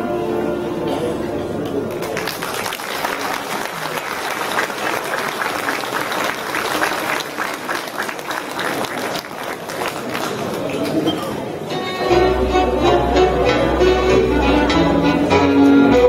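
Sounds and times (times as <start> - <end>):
audience applauding: 1.9 - 11.1.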